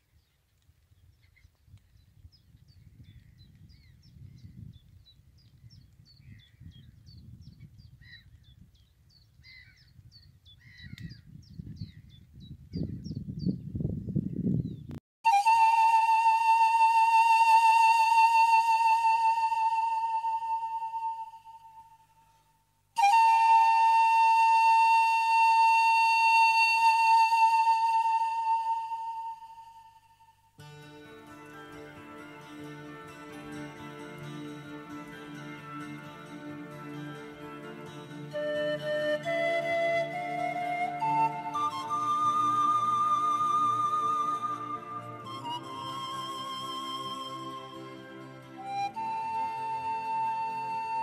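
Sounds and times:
harsh low bird calls: 0:02.5 - 0:13.6
long held musical note: 0:23.0 - 0:51.0.

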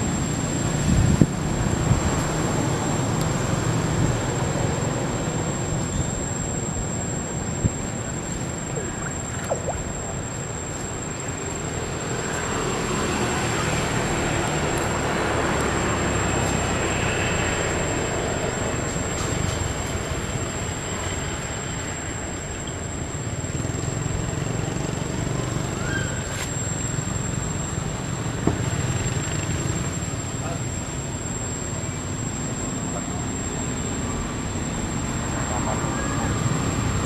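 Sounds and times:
low rumble and hiss: 0:00.0 - 0:23.6
thin high-pitched whine: 0:03.0 - 0:37.0.

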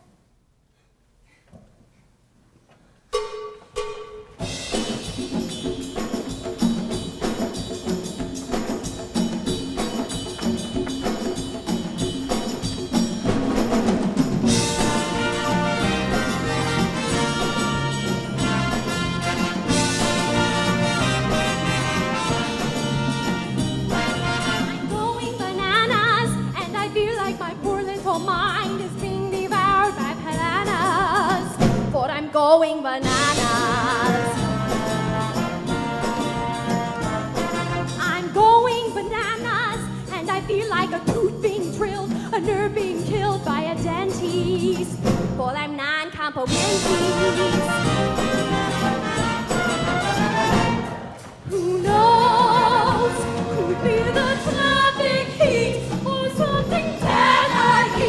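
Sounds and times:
drums and percussion: 0:03.0 - 0:32.4, 0:33.0 - 0:58.0
band playing upbeat instrumental: 0:03.2 - 0:31.9, 0:33.0 - 0:45.4, 0:46.5 - 0:58.0
woman singing with vibrato: 0:24.6 - 0:35.4, 0:38.0 - 0:48.9, 0:51.4 - 0:58.0.

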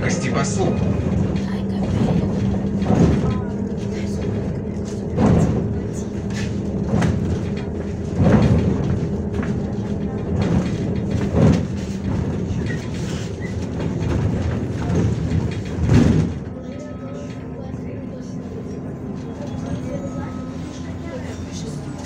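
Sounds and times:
bus body thumps and rattles: 0:00.0 - 0:17.3
bus engine humming: 0:00.0 - 0:22.0.

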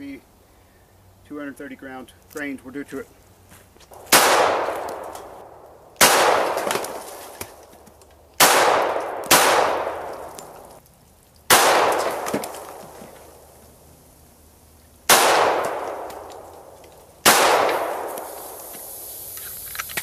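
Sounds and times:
pistol shots with echo: 0:04.1 - 0:05.2, 0:06.0 - 0:07.0, 0:08.4 - 0:10.3, 0:11.5 - 0:12.8, 0:15.1 - 0:18.3.

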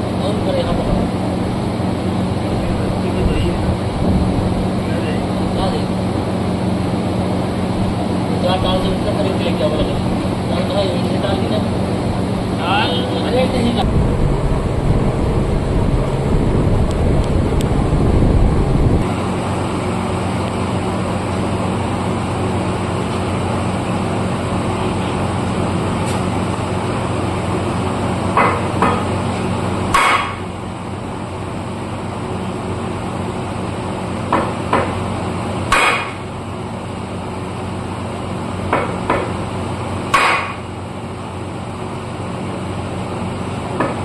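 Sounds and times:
steady low hum: 0:00.0 - 0:44.0
low rumble: 0:13.4 - 0:19.2
hammer striking metal: 0:29.9 - 0:30.5, 0:35.7 - 0:36.2, 0:40.1 - 0:40.6.

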